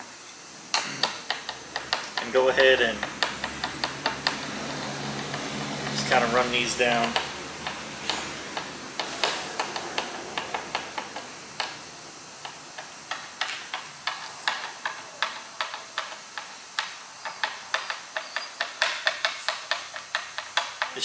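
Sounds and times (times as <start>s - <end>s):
screwdriver clicking: 1.0s - 16.9s.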